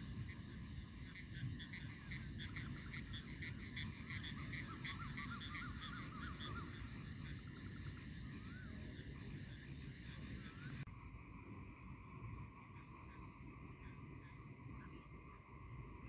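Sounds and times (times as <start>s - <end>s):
high insect trill: 0.0s - 11.2s.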